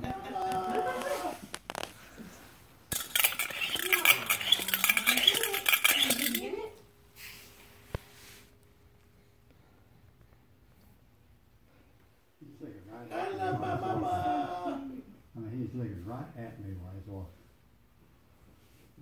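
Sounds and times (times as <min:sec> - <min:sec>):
metallic rattle of pump plunger: 0:02.9 - 0:06.5
spinning top humming: 0:02.9 - 0:06.8.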